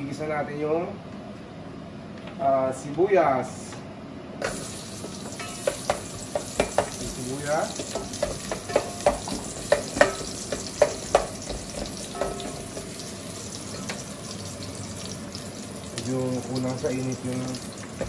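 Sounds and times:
onions sizzling in oil: 0:04.4 - 0:18.0
spatula scraping and tapping pot: 0:05.0 - 0:07.1, 0:07.8 - 0:13.0.

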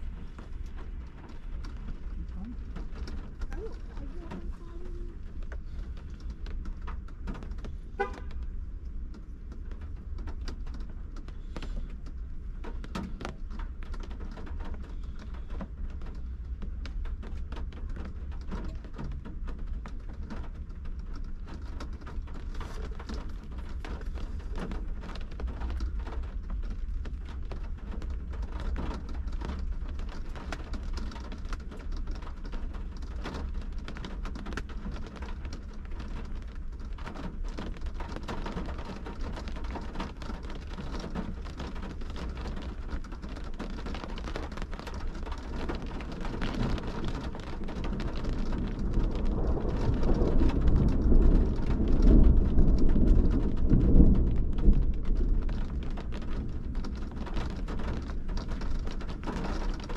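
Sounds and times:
rain on car windshield: 0:00.0 - 0:59.9.

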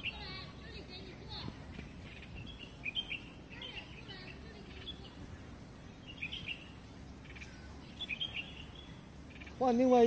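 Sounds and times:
birds chirping: 0:00.0 - 0:10.0
low steady background noise: 0:00.0 - 0:10.0.

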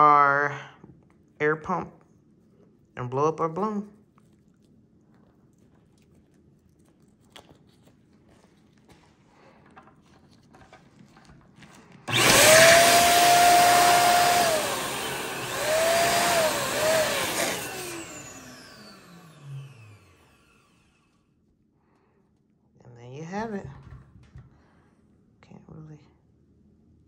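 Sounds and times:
electric air pump blowing: 0:12.1 - 0:21.1.

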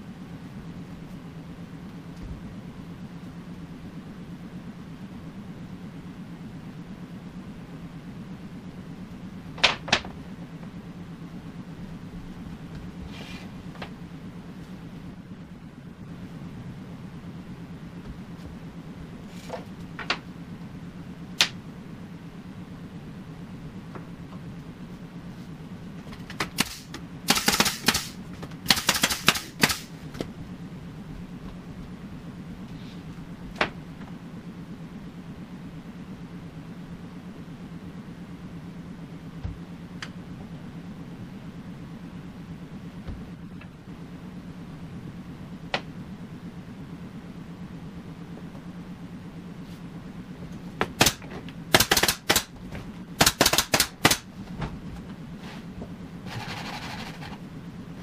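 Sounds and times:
low machine hum: 0:00.0 - 0:58.0
rapid sharp clacks: 0:26.3 - 0:29.9, 0:50.9 - 0:52.5, 0:53.2 - 0:54.3.

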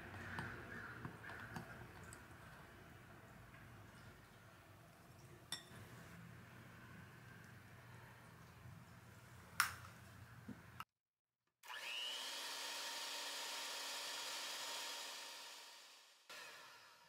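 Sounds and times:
electric hand mixer whirring: 0:11.6 - 0:17.0.

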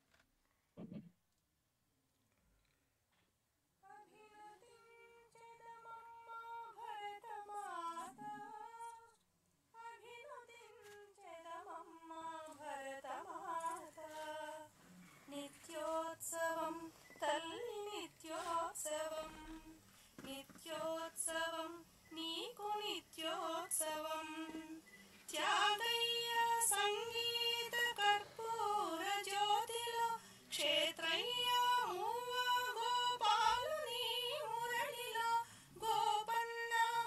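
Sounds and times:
woman singing devotional song: 0:03.8 - 0:37.0.

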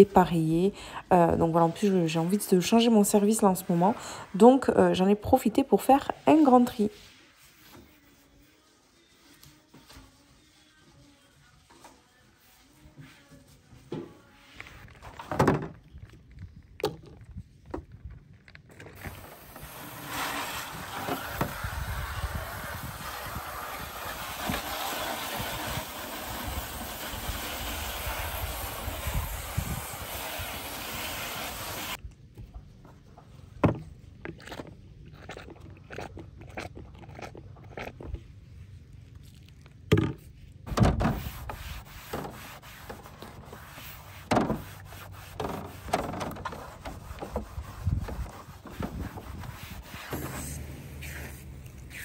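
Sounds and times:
sponge scrubbing: 0:01.2 - 0:15.0, 0:19.0 - 0:32.0, 0:38.4 - 0:52.0
hose water spraying on plastic: 0:19.0 - 0:32.0, 0:40.6 - 0:52.0.

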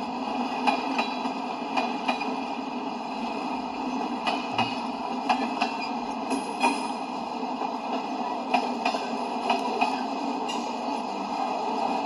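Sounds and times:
train wheels rumbling on rail: 0:00.0 - 0:12.0
wheel clicks on rail: 0:00.6 - 0:02.4, 0:04.2 - 0:07.0, 0:07.9 - 0:10.8.

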